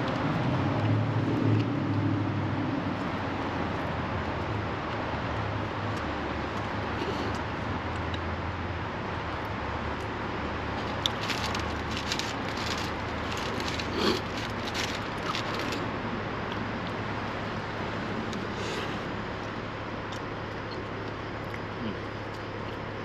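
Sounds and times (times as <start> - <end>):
steady low hum: 0.0 - 23.0
short crackly rustles: 10.8 - 15.8
person chewing: 10.9 - 15.8.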